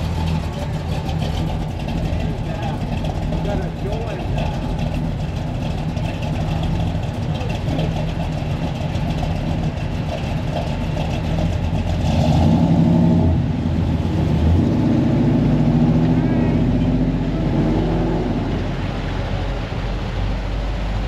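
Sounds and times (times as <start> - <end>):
car engine running: 0.0 - 21.0
people talking: 1.9 - 4.9, 7.2 - 8.3, 16.0 - 17.0.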